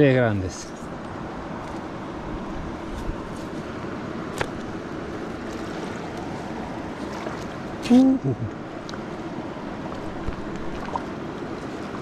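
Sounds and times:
river water rushing: 0.6 - 12.0.

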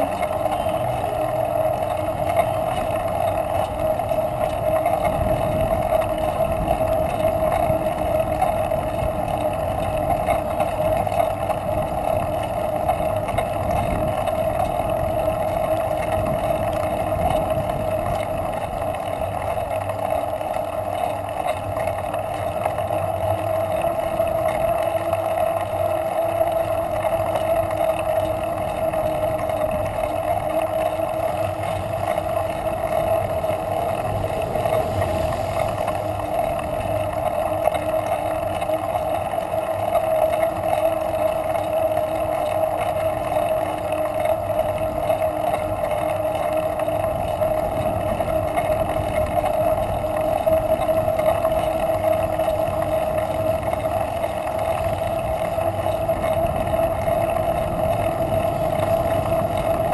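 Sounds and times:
tyres on asphalt: 0.0 - 59.9
wind noise: 28.6 - 38.9, 46.5 - 59.9.

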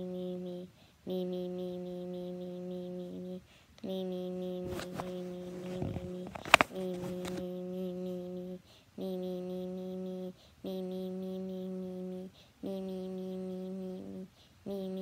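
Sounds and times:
boy humming one note: 0.0 - 15.0
breath: 0.7 - 1.0, 3.4 - 3.8, 8.6 - 9.0, 10.4 - 10.6, 12.3 - 12.6, 14.3 - 14.6.

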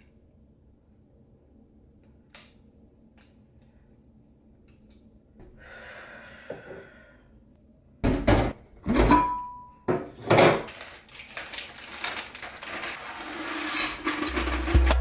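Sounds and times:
plastic bag crinkling: 10.6 - 15.0.

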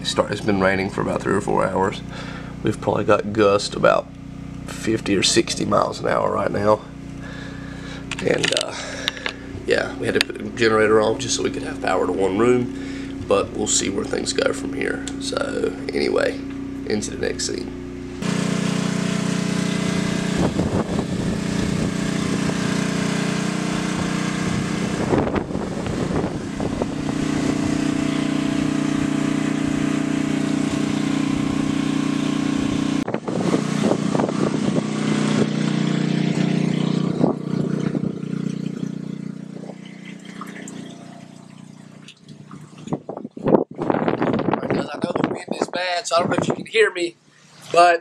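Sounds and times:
generator engine humming: 0.0 - 48.0
wind buffeting microphone: 20.2 - 22.7, 23.9 - 29.9, 32.6 - 35.8, 36.7 - 38.9, 42.6 - 46.8.

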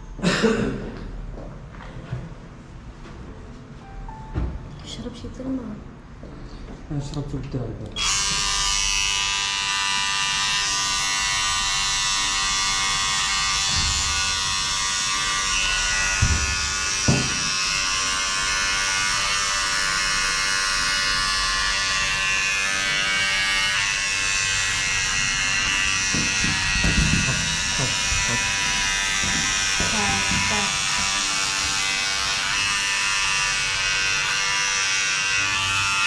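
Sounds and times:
electric hair clippers humming: 7.9 - 36.0
short knocks: 26.1 - 28.5.

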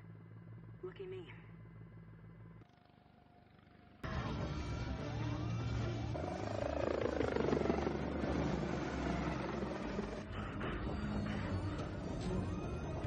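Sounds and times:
helicopter engine and rotor noise: 2.6 - 13.0.

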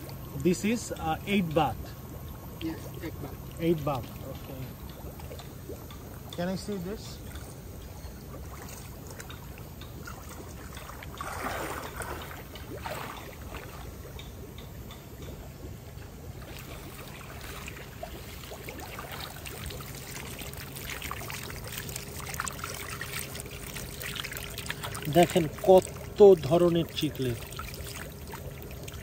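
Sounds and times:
water sloshing and trickling: 0.0 - 29.0
water splash: 10.0 - 13.9.

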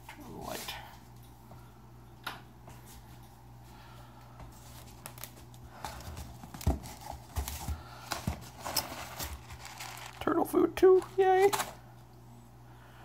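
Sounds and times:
packing material rustling: 4.6 - 11.8.

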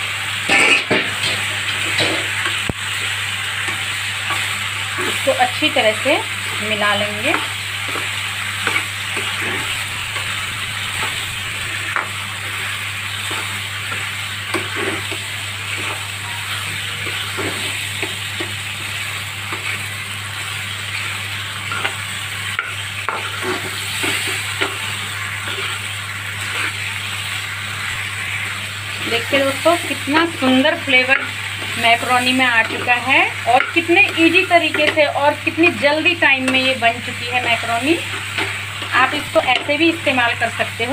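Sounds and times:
pasta sizzling in a pan: 0.0 - 40.9
low hum: 9.1 - 13.8.

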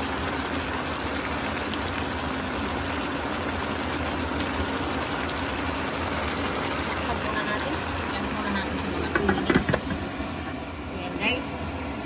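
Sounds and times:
vegetables sizzling in a wok: 0.0 - 12.0.

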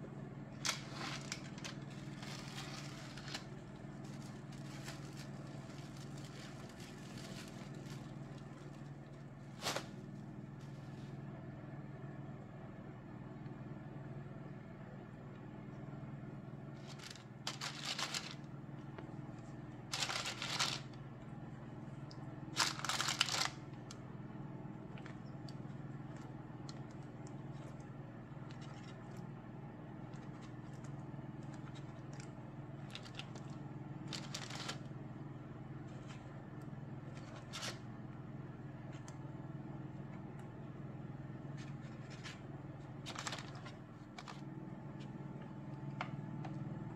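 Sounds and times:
steady low hum: 0.0 - 46.9
parchment and plastic wrap crinkling: 0.5 - 11.2, 16.7 - 21.0, 22.0 - 24.0, 24.8 - 29.2, 29.9 - 35.0, 35.8 - 37.9, 41.4 - 46.2.

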